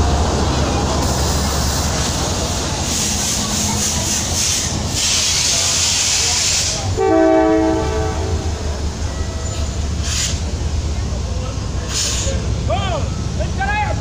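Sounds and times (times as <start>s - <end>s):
train rumble with hiss: 0.0s - 14.0s
train horn chord: 7.0s - 8.7s.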